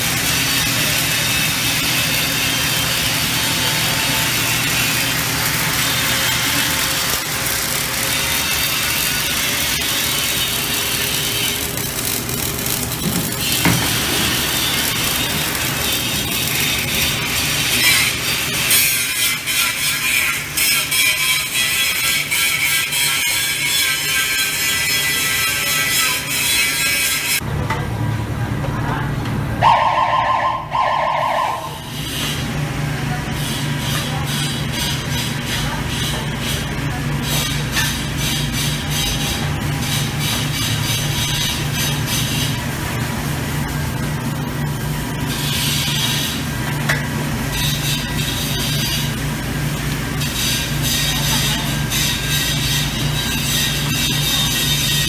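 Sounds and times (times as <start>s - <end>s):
low machinery hum: 0.0s - 20.6s
welding arc crackling: 0.0s - 27.4s, 31.2s - 55.0s.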